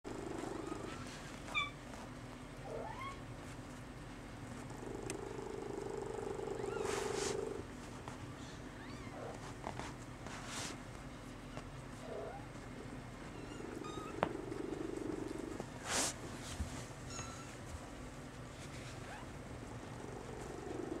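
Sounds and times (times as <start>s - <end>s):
cat purring: 0.1s - 1.3s, 4.4s - 7.8s, 12.0s - 16.2s, 18.6s - 21.0s.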